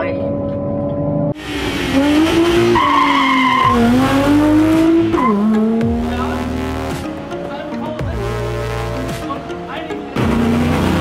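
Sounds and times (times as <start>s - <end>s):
car engine accelerating: 0.3s - 11.0s
tyres squealing: 2.6s - 5.6s.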